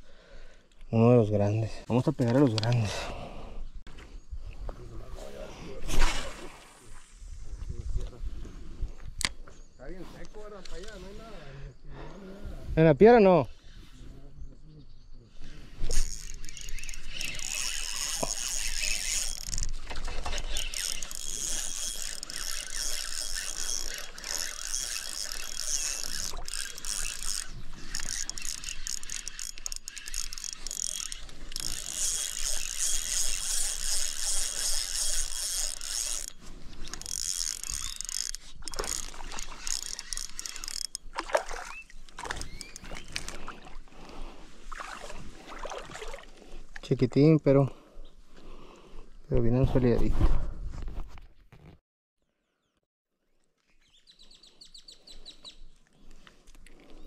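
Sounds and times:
fishing reel cranking: 0:15.4 - 0:43.6.

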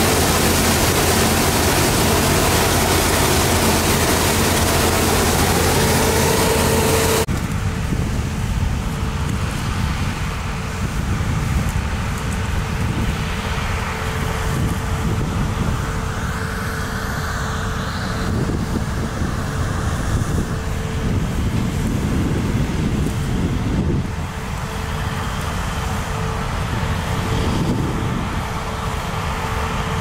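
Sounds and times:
thin machine whine: 0:00.0 - 0:07.3
combine harvester engine rumble: 0:00.0 - 0:30.0.

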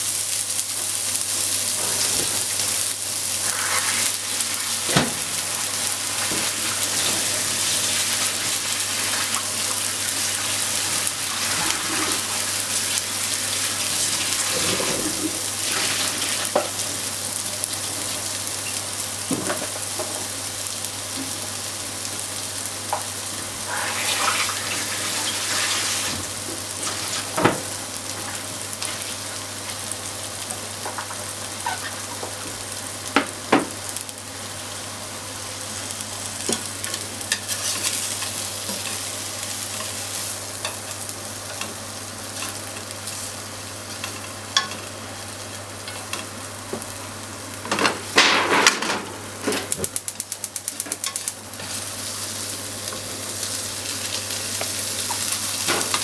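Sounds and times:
fish sizzling in oil: 0:00.0 - 0:56.0.

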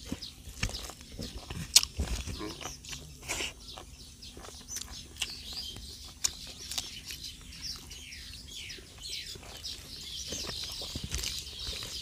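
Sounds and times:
smacking clicks of eating: 0:00.0 - 0:07.8, 0:09.0 - 0:12.0
birds chirping: 0:00.0 - 0:12.0.

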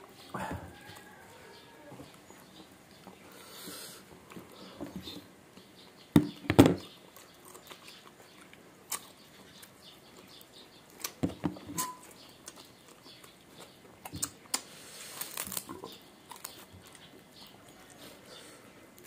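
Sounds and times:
chewing and mouth clicks: 0:06.8 - 0:11.2, 0:12.0 - 0:18.1.

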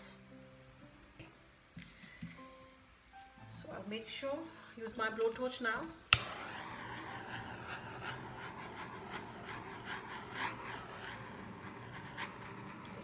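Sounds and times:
blowtorch flame hissing: 0:05.2 - 0:13.0.

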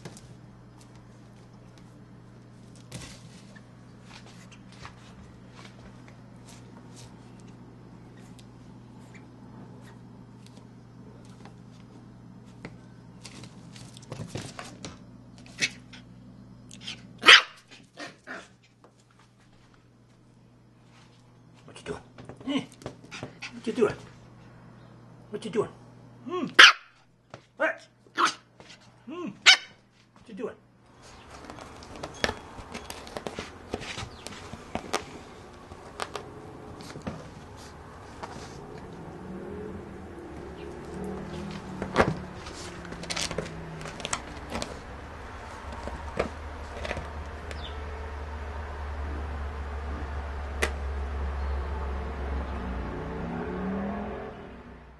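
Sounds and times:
puppy paws scrabbling on tiles: 0:00.0 - 0:16.0, 0:20.8 - 0:24.3, 0:30.9 - 0:39.1, 0:40.6 - 0:47.7
puppy barking: 0:16.8 - 0:18.5, 0:26.6 - 0:27.0, 0:28.2 - 0:28.5, 0:29.4 - 0:29.8
light scuffling and knocks: 0:31.0 - 0:39.0.

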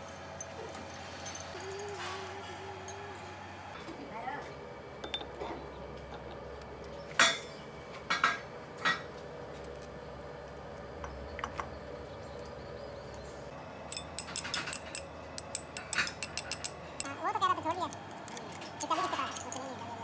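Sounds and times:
metal tools clinking: 0:00.4 - 0:03.2, 0:05.0 - 0:06.3, 0:13.9 - 0:19.8.

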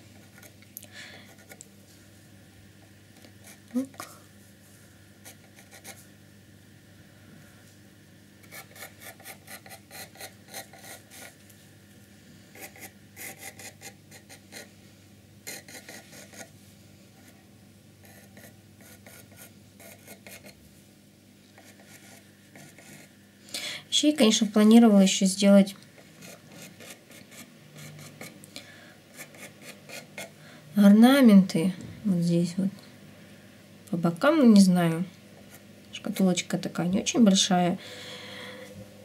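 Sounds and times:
pencil scratching strokes: 0:05.2 - 0:06.0, 0:08.5 - 0:11.4, 0:12.5 - 0:14.7, 0:15.5 - 0:16.5, 0:18.0 - 0:20.6, 0:21.6 - 0:23.1, 0:26.0 - 0:28.4, 0:29.1 - 0:30.3.

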